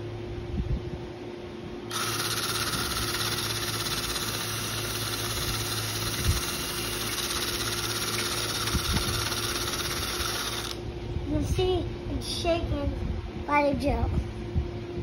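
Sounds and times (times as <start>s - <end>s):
cordless drill boring into wood: 1.9s - 10.8s.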